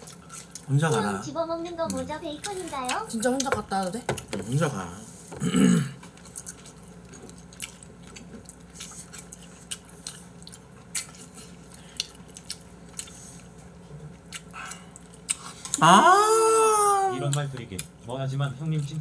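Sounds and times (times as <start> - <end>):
quiet chewing: 0.0 - 3.5, 6.0 - 15.9.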